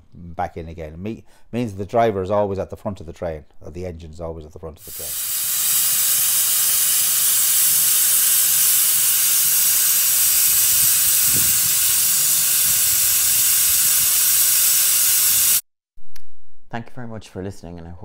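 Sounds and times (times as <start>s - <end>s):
steam locomotive hissing: 4.8s - 15.6s.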